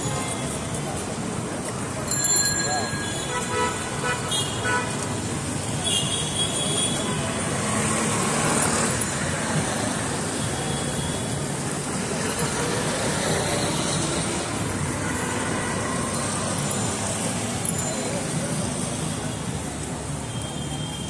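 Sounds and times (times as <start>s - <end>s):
roadside traffic noise: 0.0s - 21.0s.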